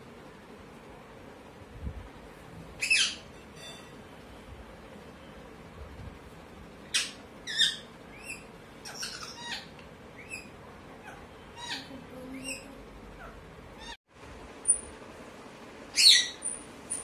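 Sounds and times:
parakeets squawking and chirping: 0:02.8 - 0:03.9, 0:06.9 - 0:14.0, 0:16.0 - 0:17.0.

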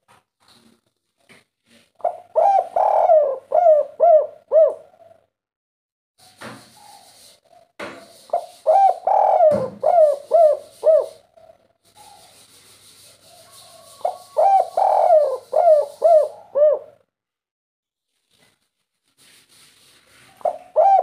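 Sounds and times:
dove cooing: 0:02.0 - 0:05.3, 0:06.8 - 0:12.2, 0:13.4 - 0:17.0, 0:20.4 - 0:21.0.

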